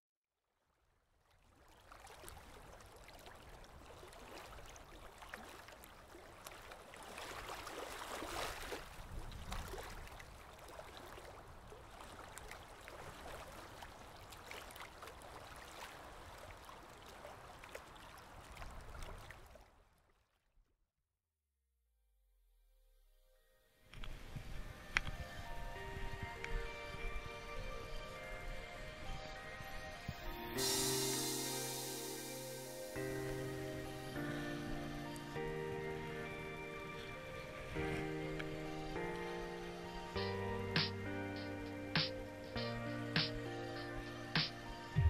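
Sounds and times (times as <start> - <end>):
rushing water: 1.4 - 20.1.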